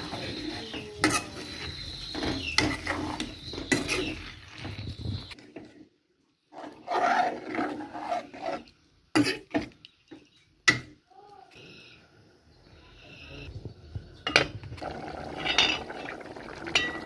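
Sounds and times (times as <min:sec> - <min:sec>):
metal spoon scraping pot: 0:00.0 - 0:05.8, 0:06.5 - 0:09.5, 0:15.3 - 0:16.1
spoon clinking against pot: 0:01.0 - 0:01.4.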